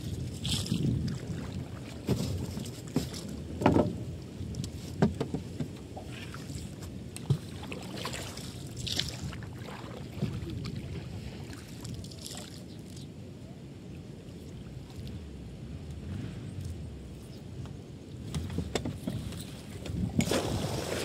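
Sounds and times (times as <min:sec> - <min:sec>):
wind on microphone: 0:00.0 - 0:06.4, 0:08.8 - 0:11.6, 0:15.1 - 0:21.0
water rushing along hull: 0:00.0 - 0:16.4, 0:18.0 - 0:21.0.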